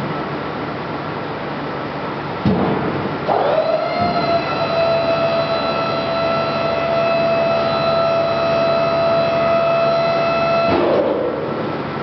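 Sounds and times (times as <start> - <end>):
hydraulic pump whining: 3.2 - 11.4.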